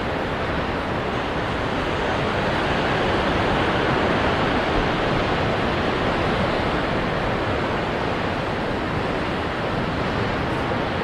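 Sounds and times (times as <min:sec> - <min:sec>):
ocean waves rushing: 0:00.0 - 0:11.0.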